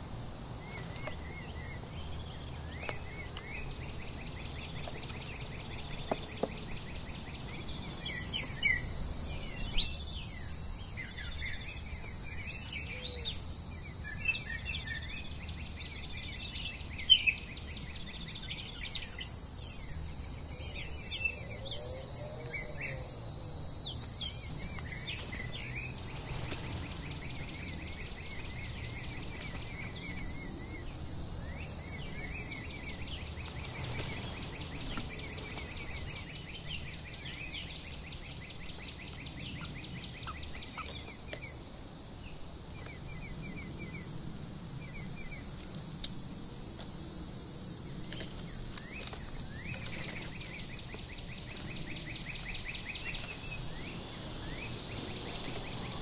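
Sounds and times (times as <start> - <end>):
songbirds chirping: 0.0 - 56.0
high-pitched insect drone: 48.6 - 56.0.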